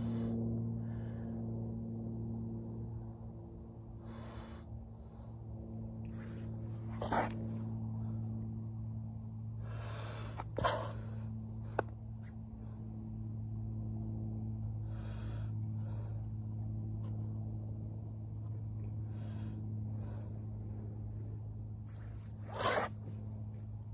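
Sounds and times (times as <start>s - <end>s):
person breathing deeply: 0.0s - 1.7s, 3.9s - 8.3s, 9.5s - 12.9s, 14.7s - 16.6s, 19.0s - 23.1s
steady low hum: 0.0s - 23.9s.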